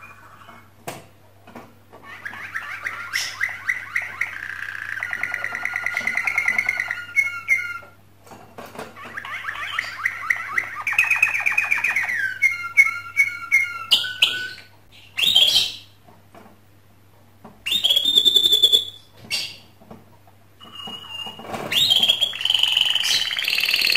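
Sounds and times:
canary singing: 0:02.0 - 0:08.0, 0:09.0 - 0:16.0, 0:17.6 - 0:19.6, 0:20.6 - 0:23.9.

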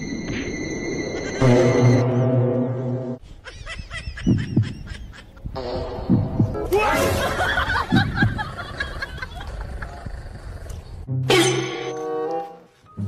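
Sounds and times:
chattering laugh-like sound: 0:03.3 - 0:05.6, 0:07.1 - 0:10.1
heartbeat thumps: 0:04.1 - 0:06.7, 0:07.9 - 0:08.6.

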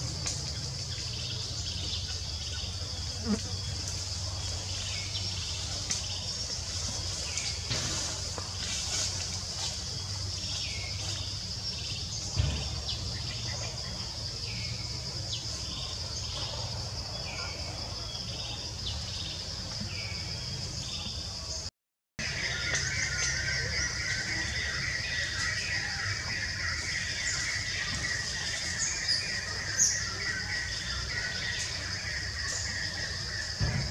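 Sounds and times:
high insect drone: 0:00.0 - 0:33.9
thump: 0:12.3 - 0:13.0, 0:33.6 - 0:33.9.

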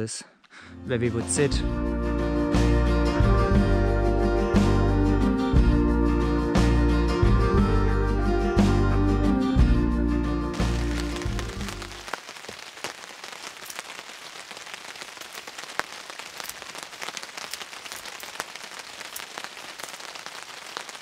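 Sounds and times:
steady rain: 0:10.5 - 0:21.0.

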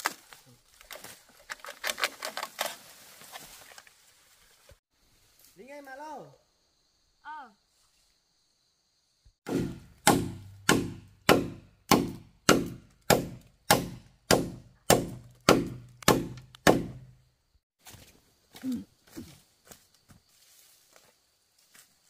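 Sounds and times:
heavy blows on wood: 0:09.5 - 0:17.1.

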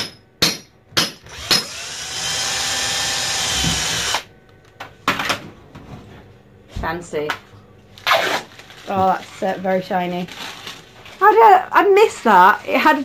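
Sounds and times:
power drill running: 0:01.3 - 0:04.3.

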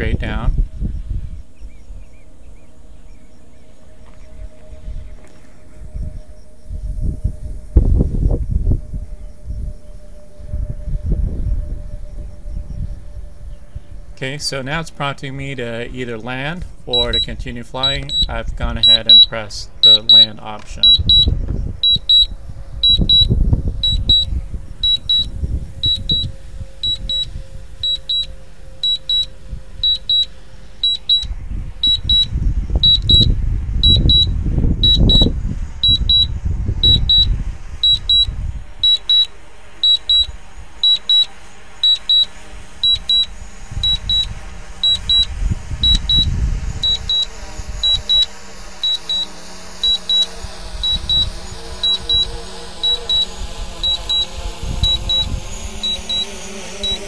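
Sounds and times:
low rumble: 0:00.0 - 0:57.0
high double beep: 0:16.9 - 0:57.0.

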